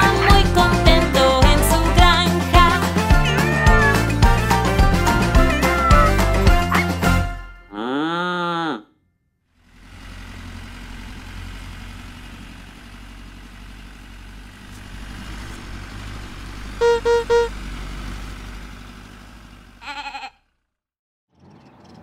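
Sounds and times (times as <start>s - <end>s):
cartoon tractor engine rumble: 0.0s - 8.8s, 9.6s - 20.8s
tractor horn toots: 16.8s - 17.6s.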